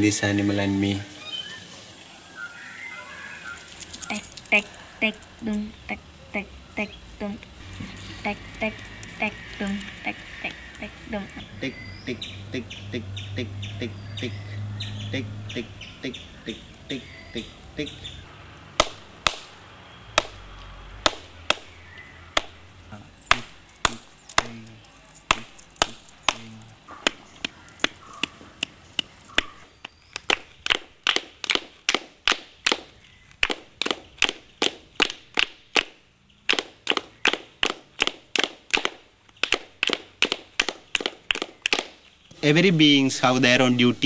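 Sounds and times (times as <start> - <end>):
sharp rhythmic clicks: 3.8 - 14.4, 18.8 - 42.1.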